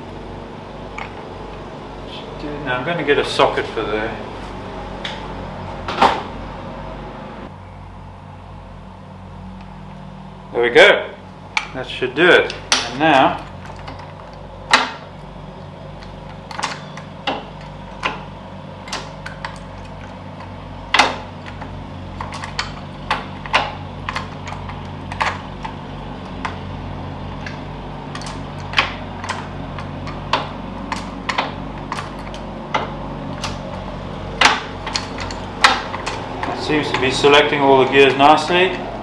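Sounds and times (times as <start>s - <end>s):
steady low hum: 0.0s - 39.0s
gear lever clicking and clunking: 12.4s - 38.9s.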